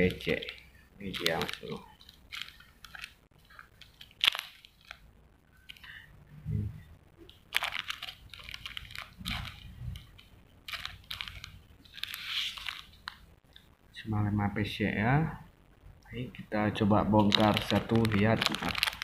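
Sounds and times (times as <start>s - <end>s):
plastic packets crinkling: 0.0s - 6.0s, 7.2s - 13.6s, 16.8s - 19.0s.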